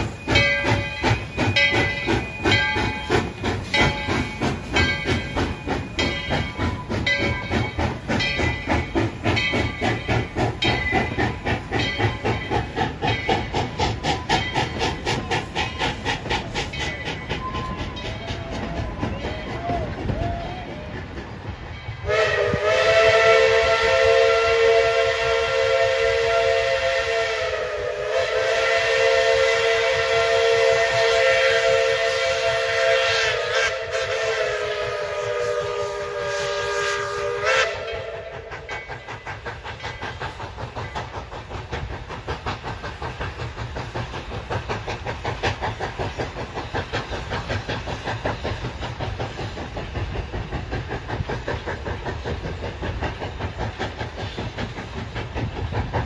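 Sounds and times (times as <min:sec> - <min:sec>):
steam locomotive exhaust chuffing: 0:00.0 - 0:56.0
steam whistle blast: 0:22.0 - 0:38.5.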